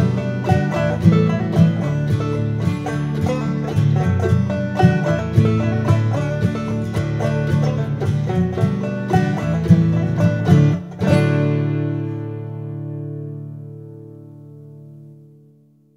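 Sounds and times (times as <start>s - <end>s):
bluegrass string music: 0.0s - 15.4s.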